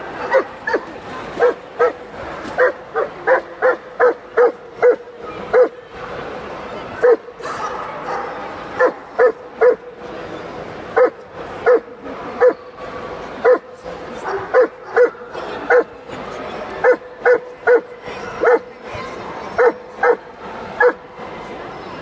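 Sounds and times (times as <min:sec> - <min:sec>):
dog barking: 0:02.6 - 0:05.7, 0:07.0 - 0:09.8, 0:11.0 - 0:11.8, 0:12.4 - 0:12.6, 0:14.3 - 0:15.9, 0:16.8 - 0:18.6, 0:19.6 - 0:20.2, 0:20.8 - 0:21.0.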